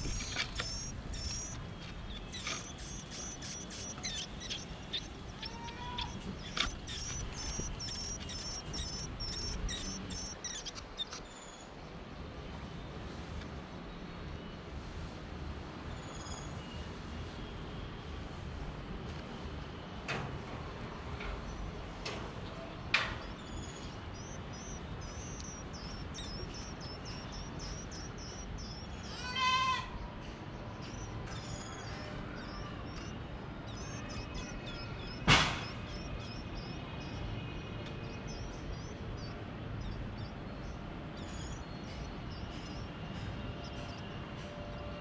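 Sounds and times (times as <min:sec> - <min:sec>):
high thin bird chirps: 0:00.0 - 0:11.7, 0:23.2 - 0:30.0, 0:30.7 - 0:44.0
sharp knock: 0:35.2 - 0:35.9.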